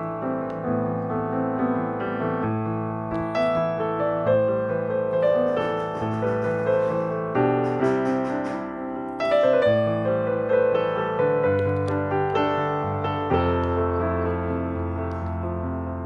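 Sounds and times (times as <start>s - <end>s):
gentle piano music: 0.0s - 16.0s.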